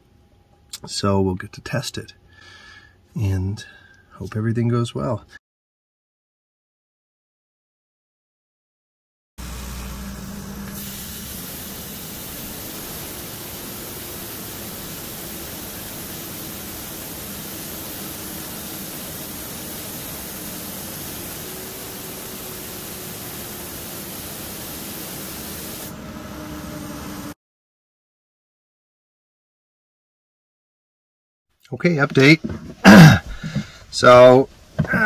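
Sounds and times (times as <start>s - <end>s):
diesel engine low rumble: 9.4s - 13.8s
air hissing from exhaust brake: 10.5s - 27.4s.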